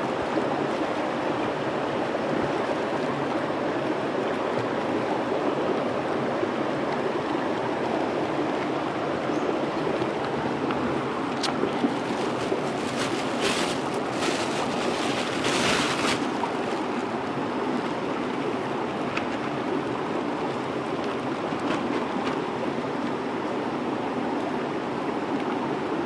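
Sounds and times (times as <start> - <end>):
river water rushing over rocks: 0.0 - 26.0
handling noise near microphone: 11.3 - 16.9.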